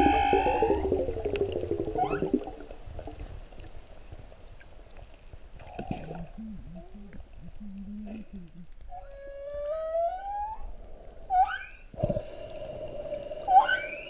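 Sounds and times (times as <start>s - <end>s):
whale song moans underwater: 0.0s - 2.6s, 5.8s - 11.9s, 13.2s - 14.0s
faint hiss of water: 0.0s - 14.0s.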